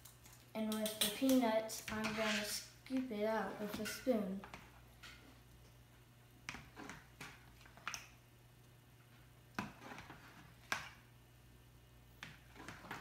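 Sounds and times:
plastic spoon scraping plastic bowl: 1.8s - 2.7s.

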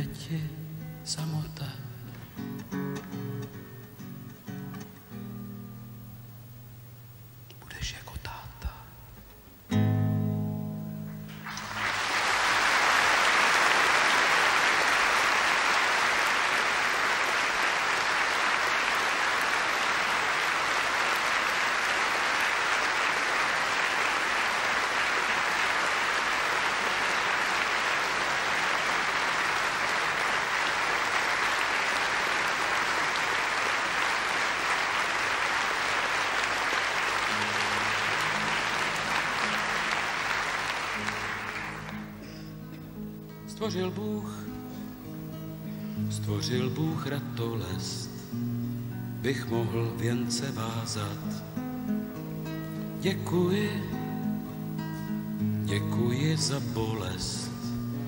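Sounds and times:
acoustic guitar: 0.0s - 58.0s
audience applauding: 11.3s - 42.9s.

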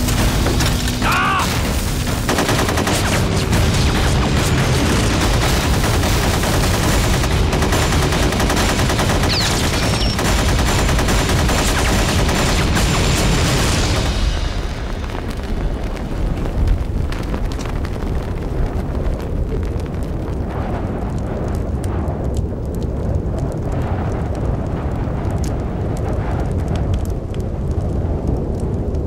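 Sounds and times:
machine-gun fire: 0.0s - 14.6s.

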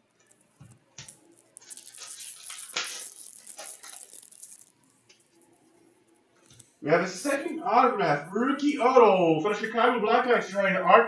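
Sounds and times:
foil wrapper crinkling and tearing: 0.1s - 5.5s.

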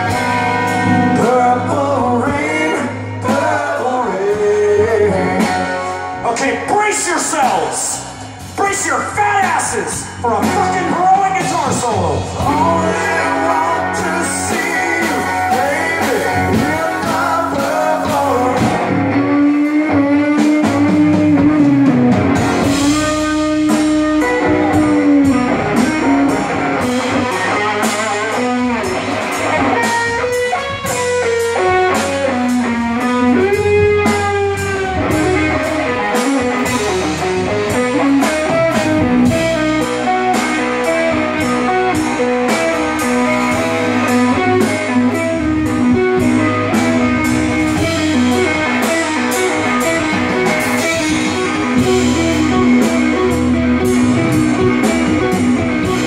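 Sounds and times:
bass guitar: 0.0s - 56.0s
drums: 0.0s - 56.0s
electric guitar solo: 9.1s - 56.0s.

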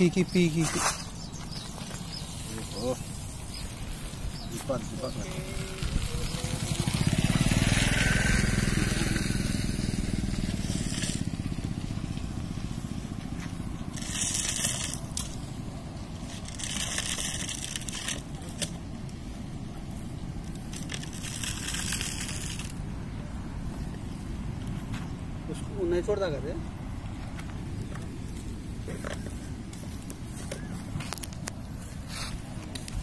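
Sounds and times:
dry grass rustling and crunching: 0.0s - 25.1s, 27.2s - 33.0s
steady low rumble: 0.0s - 25.8s.

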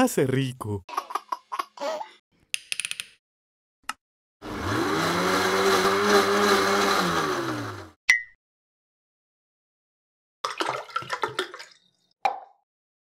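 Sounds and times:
blender motor whirring: 4.4s - 8.0s.

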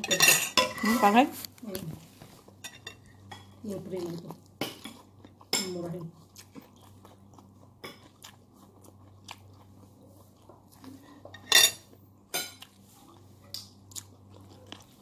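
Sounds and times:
faint low hum: 0.0s - 15.0s
chewing corn: 3.8s - 11.2s, 12.6s - 15.0s.

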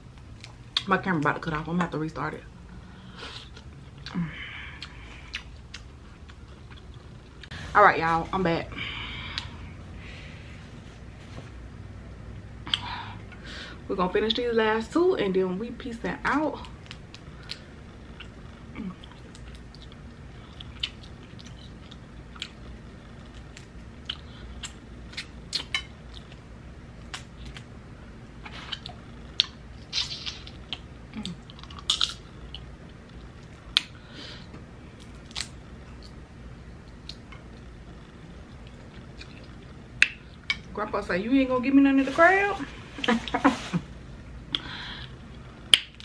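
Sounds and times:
wet chewing and smacking: 3.4s - 7.5s, 19.0s - 26.4s.

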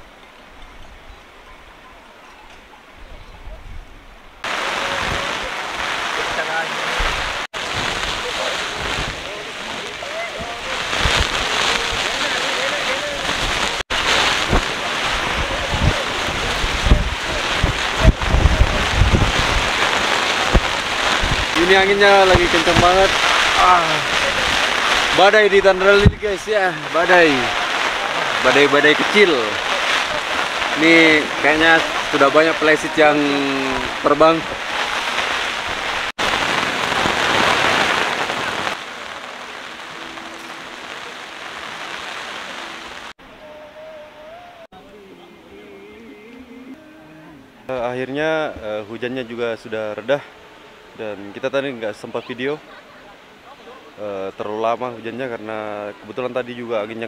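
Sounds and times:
rain: 0.0s - 44.8s, 46.3s - 57.0s
storm wind gusting: 3.2s - 43.2s
wind buffeting microphone: 13.2s - 26.5s.

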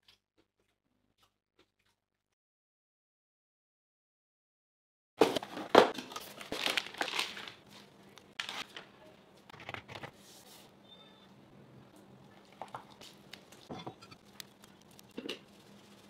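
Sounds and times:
plastic bag crinkling: 5.9s - 8.9s.

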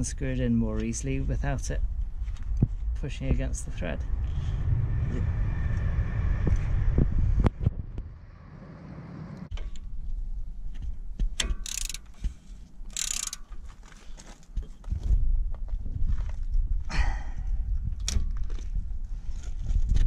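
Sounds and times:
rapid ratchet clicking: 11.4s - 12.2s, 12.9s - 13.5s
metal clicks: 11.4s - 13.9s.

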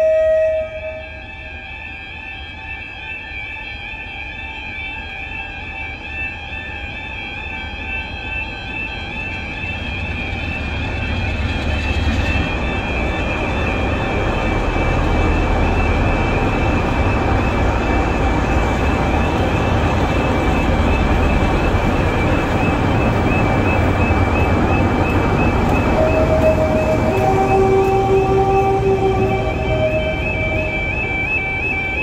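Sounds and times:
crossing alarm warbling: 0.0s - 32.0s
diesel locomotive rumbling: 9.4s - 32.0s.

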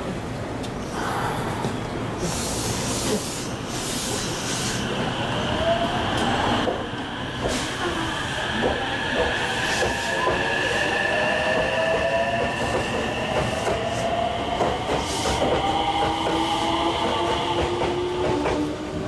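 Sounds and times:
air hiss: 2.2s - 5.0s
train wheels rolling and clicking: 3.0s - 19.0s.

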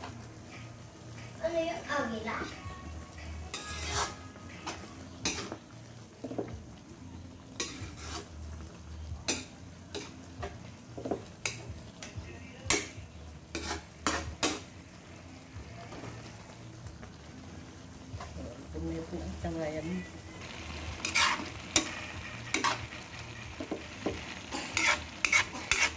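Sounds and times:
food sizzling: 0.0s - 25.9s
metal spatula scraping wok: 3.2s - 5.7s, 7.6s - 8.6s, 9.3s - 10.3s, 11.4s - 14.7s, 20.4s - 25.9s.

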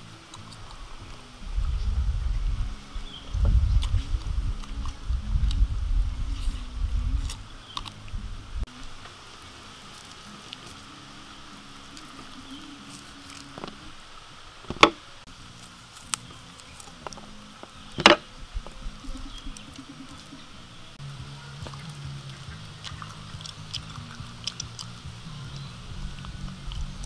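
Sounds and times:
low rumble: 0.6s - 9.0s, 17.2s - 27.0s.

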